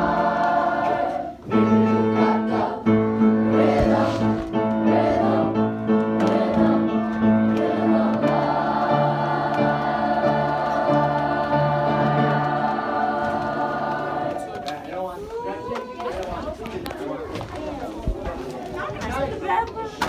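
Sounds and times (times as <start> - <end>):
choir singing held chords: 0.0 - 15.1.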